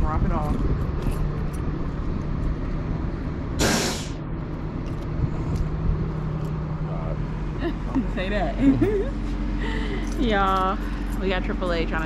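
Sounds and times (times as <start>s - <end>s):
truck engine idling: 0.0s - 12.0s
air brake hiss: 3.6s - 4.2s.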